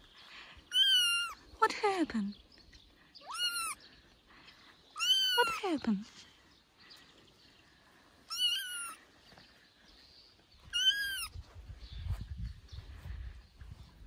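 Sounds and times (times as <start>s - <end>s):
kitten meowing: 0.7s - 1.4s, 3.2s - 3.8s, 5.0s - 5.6s, 8.3s - 9.0s, 10.7s - 11.3s.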